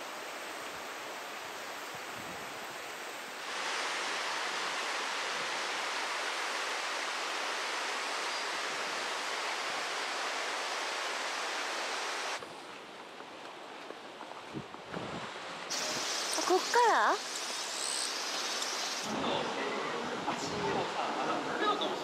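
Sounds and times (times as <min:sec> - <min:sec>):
river rushing over stones: 0:00.0 - 0:12.4.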